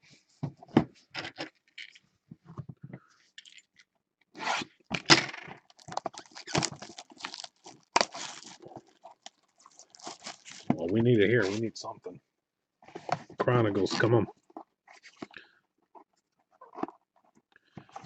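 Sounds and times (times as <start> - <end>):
foil wrapper tearing and crinkling: 5.6 - 10.8.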